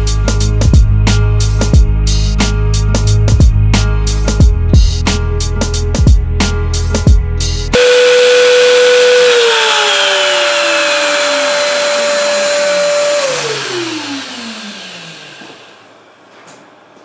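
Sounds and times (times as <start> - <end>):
router spindle whining: 7.8 - 15.9
shop vacuum running: 7.8 - 17.0.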